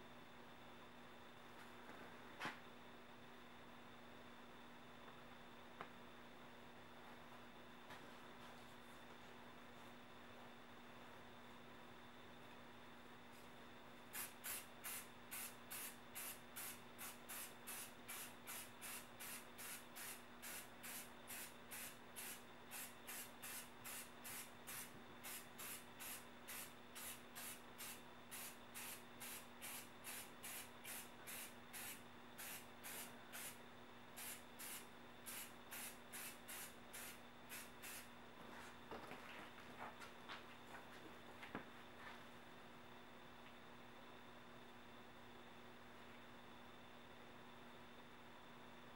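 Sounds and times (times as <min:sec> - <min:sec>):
spray can hissing bursts: 0:14.2 - 0:33.6, 0:34.2 - 0:38.1.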